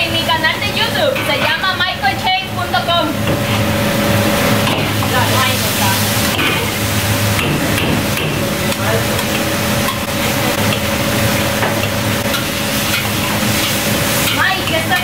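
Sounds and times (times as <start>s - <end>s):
steady hum: 0.0s - 15.0s
rice sizzling in a wok: 3.5s - 15.0s
metal utensils scraping a wok: 9.1s - 15.0s.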